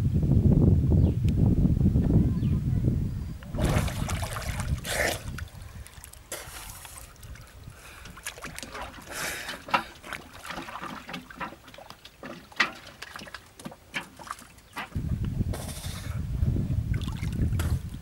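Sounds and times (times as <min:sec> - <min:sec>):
river water splashing: 0:03.5 - 0:15.0
water dripping: 0:03.6 - 0:15.0.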